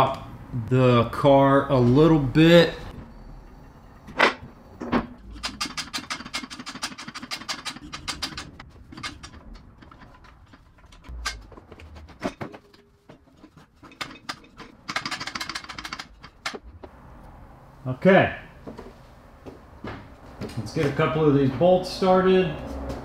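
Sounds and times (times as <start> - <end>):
rapid mechanical clicking: 5.0 - 16.9.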